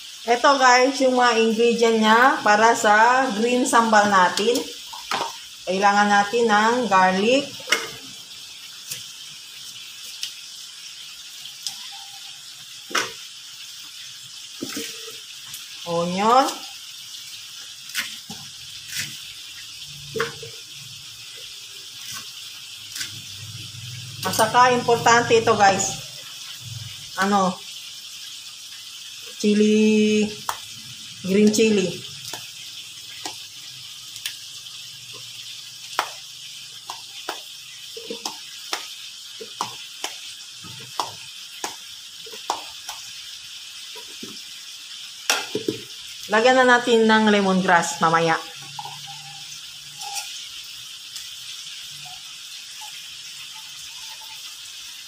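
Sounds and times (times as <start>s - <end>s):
steady hiss: 0.0s - 0.2s, 26.0s - 47.0s.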